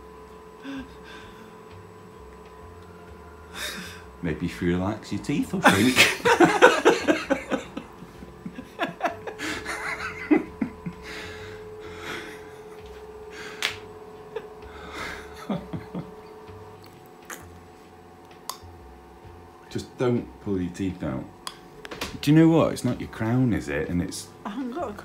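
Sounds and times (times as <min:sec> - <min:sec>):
person laughing: 0:05.6 - 0:16.4.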